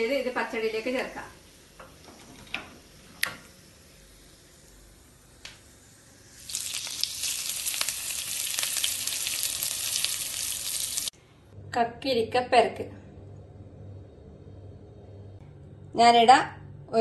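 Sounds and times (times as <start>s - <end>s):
hot oil sizzling and crackling: 0.3s - 11.2s.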